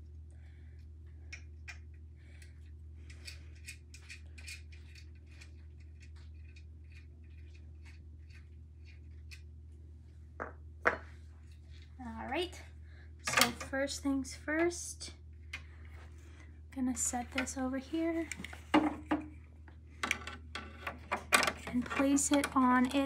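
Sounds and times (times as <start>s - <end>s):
steady low hum: 0.0s - 23.0s
metallic clicks and scraping: 1.3s - 9.5s.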